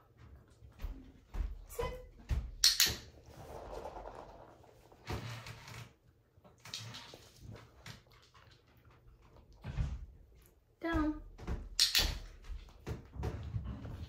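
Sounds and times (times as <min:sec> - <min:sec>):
puppy paws on hard floor: 0:00.0 - 0:14.0.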